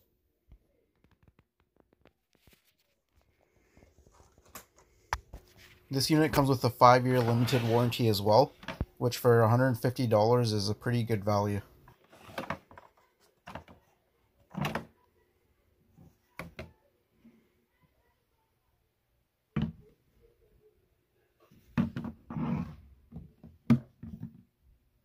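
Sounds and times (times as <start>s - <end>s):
plastic rubbing: 1.0s - 8.9s.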